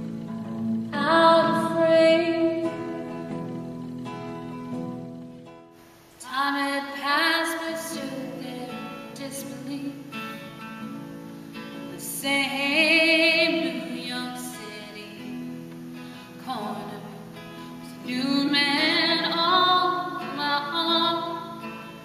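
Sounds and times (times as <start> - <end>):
acoustic guitar: 0.0 - 22.0
woman singing: 0.9 - 3.1, 6.2 - 10.5, 11.8 - 22.0.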